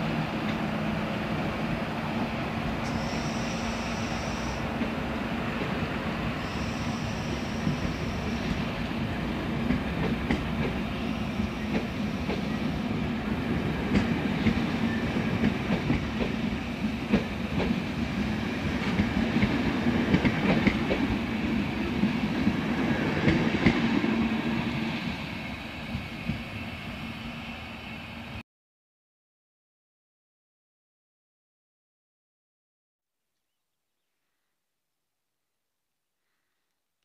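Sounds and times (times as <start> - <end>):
train wheels rumbling on rails: 0.0 - 28.4.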